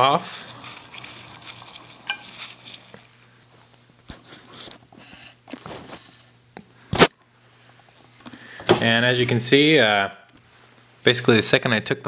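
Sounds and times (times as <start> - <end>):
water boiling in kettle: 0.0 - 3.4.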